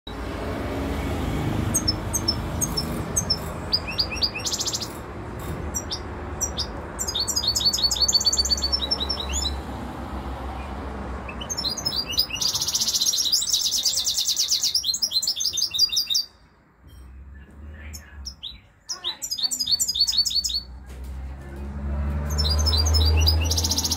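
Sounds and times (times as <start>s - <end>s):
goldfinch singing and trilling: 1.6s - 9.7s, 10.6s - 17.2s, 17.8s - 20.8s, 22.1s - 23.9s.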